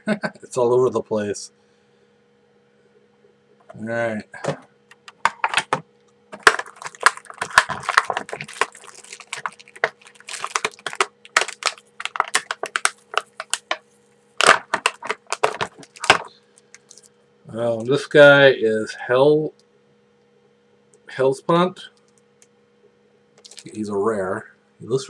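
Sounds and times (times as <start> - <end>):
plastic wrapping crinkling: 6.3 - 13.8, 14.4 - 17.1, 23.4 - 23.8.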